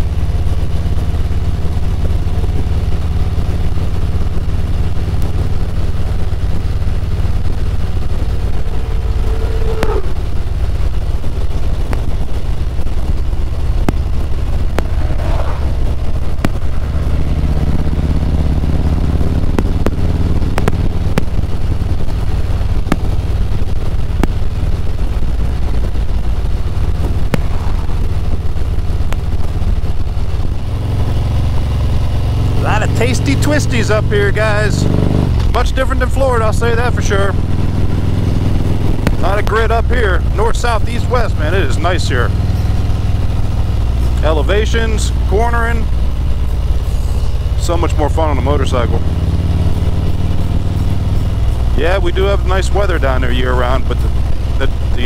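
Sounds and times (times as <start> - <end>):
motorcycle engine cruising: 0.0 - 55.0
wind noise: 4.3 - 31.6.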